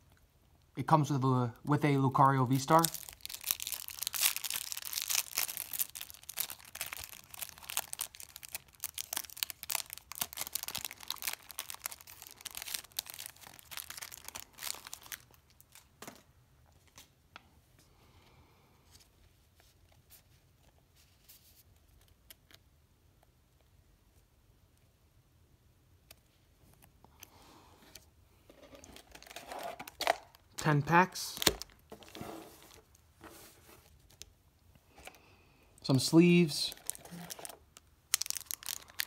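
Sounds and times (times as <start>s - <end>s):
plastic wrapper crinkling and tearing: 2.4s - 16.0s, 28.6s - 33.0s, 33.8s - 34.3s, 36.7s - 39.0s.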